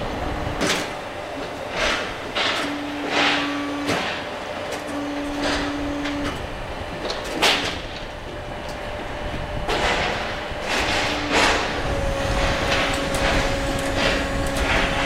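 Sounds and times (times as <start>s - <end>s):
steady hum: 0.0s - 15.0s
metal clanks and bangs: 0.6s - 6.3s, 9.6s - 15.0s.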